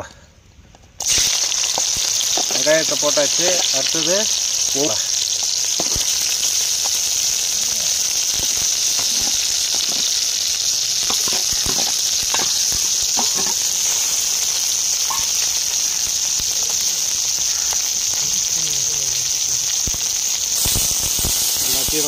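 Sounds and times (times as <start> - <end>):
onions sizzling in hot oil: 1.0 - 22.0
pan stirring knocks: 13.2 - 13.6.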